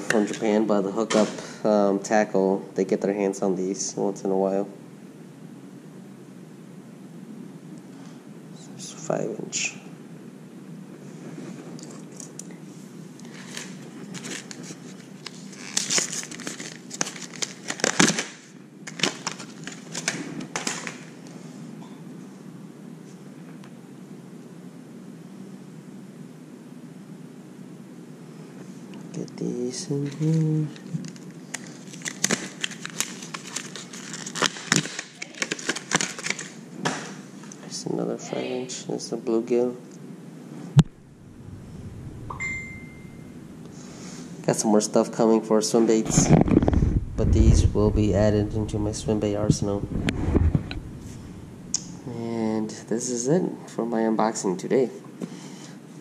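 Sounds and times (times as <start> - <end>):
plastic packaging crinkling: 13.2 - 21.1, 30.1 - 36.6.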